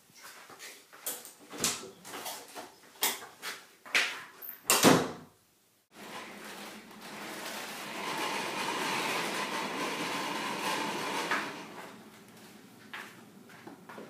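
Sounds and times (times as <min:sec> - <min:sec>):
cart rolling on concrete: 0:05.9 - 0:12.0.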